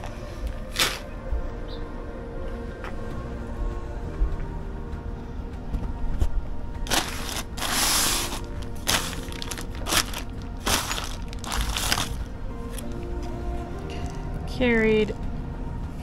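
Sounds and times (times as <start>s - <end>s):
background music with held tones: 0.0s - 16.0s
plastic bag crinkling: 6.9s - 12.8s.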